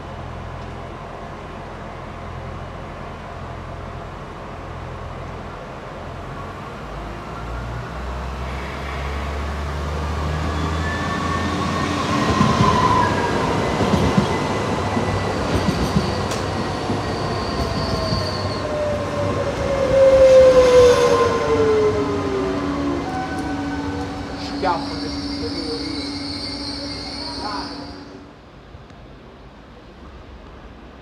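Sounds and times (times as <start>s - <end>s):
train passing: 5.5s - 31.0s.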